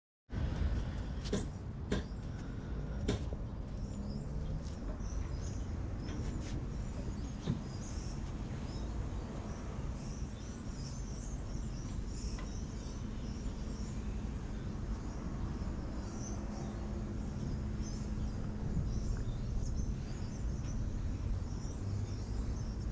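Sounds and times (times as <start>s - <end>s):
steady low rumble: 0.3s - 22.9s
small birds chirping: 0.9s - 22.9s.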